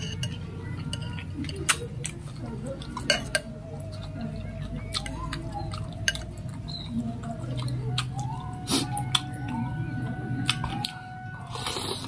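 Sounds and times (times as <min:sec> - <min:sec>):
metal spoon clinking glass bowl: 0:00.0 - 0:01.3
chewing and mouth sounds: 0:00.7 - 0:12.0.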